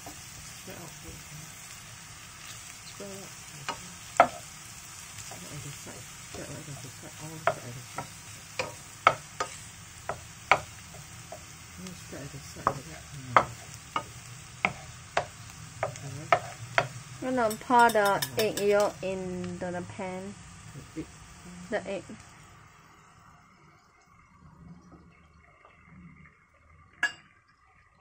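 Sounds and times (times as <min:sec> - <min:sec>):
beans sizzling in oil: 0:00.0 - 0:24.4
spatula scraping and knocking pan: 0:03.6 - 0:04.5, 0:06.4 - 0:11.6, 0:12.6 - 0:19.0.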